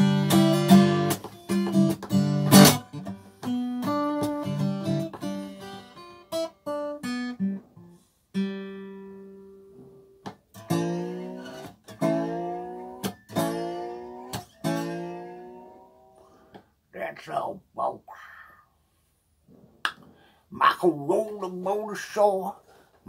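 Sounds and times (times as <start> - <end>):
acoustic guitar: 0.0 - 17.5.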